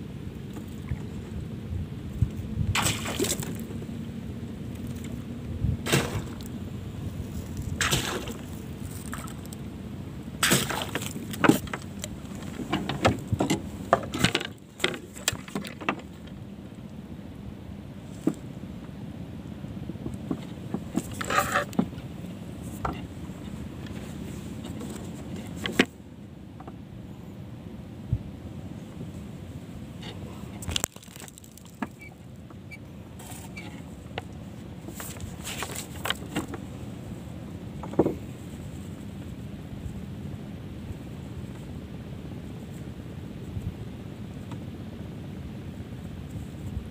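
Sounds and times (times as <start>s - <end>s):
steady low rumble: 0.0s - 46.9s
gear clicking and knocking in boat: 10.4s - 16.4s, 20.0s - 22.1s, 30.0s - 36.7s
wooden boards knocking and clattering: 37.8s - 38.2s.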